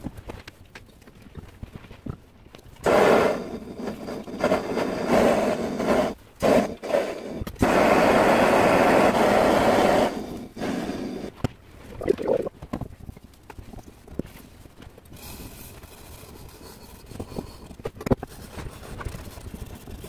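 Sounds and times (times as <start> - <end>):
blow lamp flame burning: 2.8 - 12.6.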